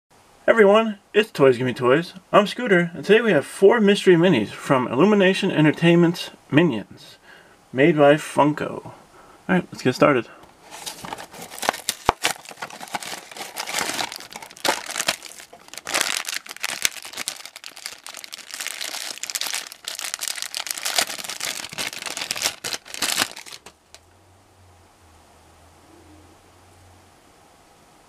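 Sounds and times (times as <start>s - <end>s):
plastic bag crinkling and tearing: 10.6s - 24.0s
cardboard box opening: 10.7s - 23.7s.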